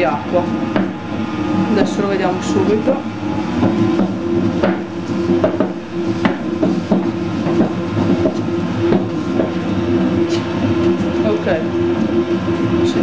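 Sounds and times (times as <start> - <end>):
dough mixer motor hum: 0.0 - 13.0
dough knocking against bowl: 3.6 - 9.8.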